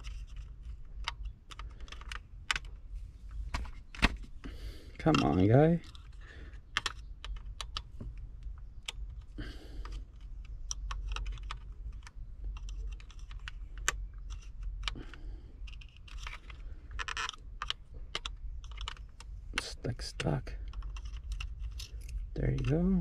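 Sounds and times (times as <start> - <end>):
small plastic clicks and taps: 5.1 - 19.7.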